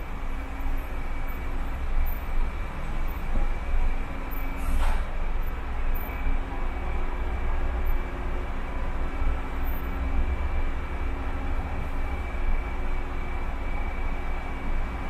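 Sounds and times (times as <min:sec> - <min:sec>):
car engine and road rumble: 0:00.0 - 0:15.0
tyres hissing on wet road: 0:03.9 - 0:05.8.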